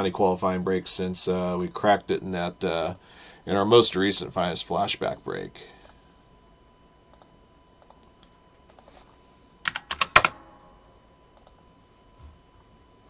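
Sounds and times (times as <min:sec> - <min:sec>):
typing on computer keyboard: 0:09.6 - 0:10.4.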